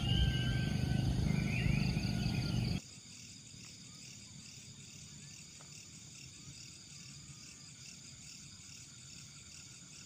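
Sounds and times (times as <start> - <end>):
birds chirping: 0.0 - 2.8
insects trilling: 0.0 - 10.0.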